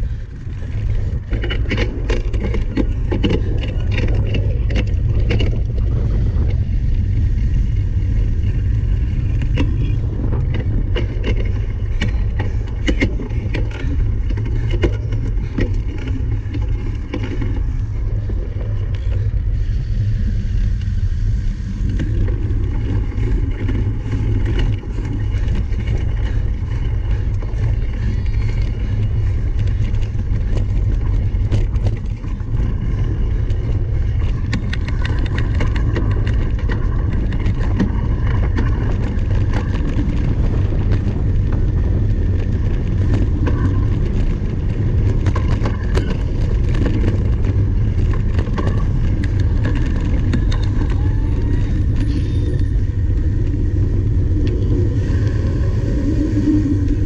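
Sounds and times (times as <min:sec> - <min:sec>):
bike rattling and clicking: 0:00.0 - 0:57.0
wind rumble on microphone: 0:00.0 - 0:57.0.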